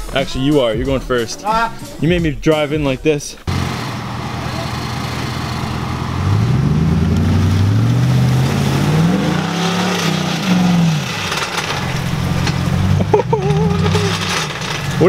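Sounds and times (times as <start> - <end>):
truck engine revving: 3.5 - 15.0
tyres splashing in mud: 3.5 - 15.0.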